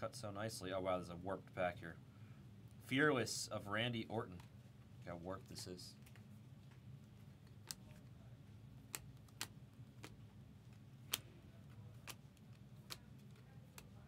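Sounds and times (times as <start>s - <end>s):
low steady hum: 0.0s - 14.0s
trading cards clicking: 7.5s - 8.1s, 8.8s - 14.0s.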